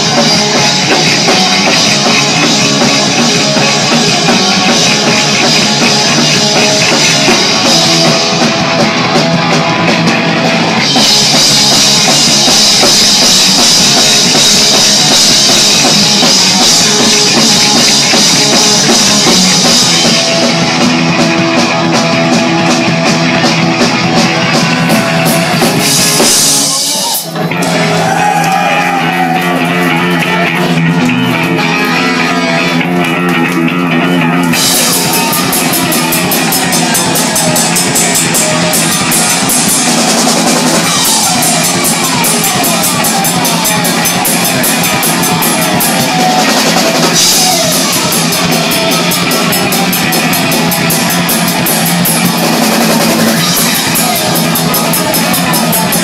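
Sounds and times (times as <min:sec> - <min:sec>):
punk rock band playing: 0:00.0 - 0:56.0.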